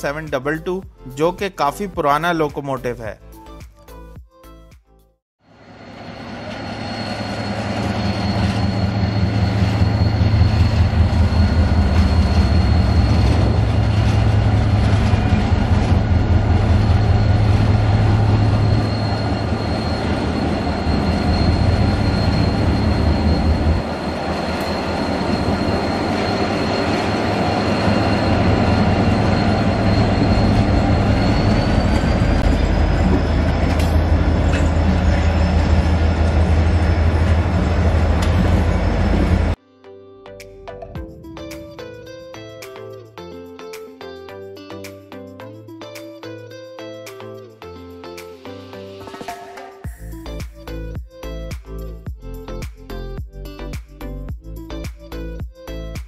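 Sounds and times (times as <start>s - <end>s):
diesel engine drone: 5.5s - 39.6s
high-pitched squeal: 5.5s - 39.6s
rhythmic train wheel noise: 5.5s - 39.6s.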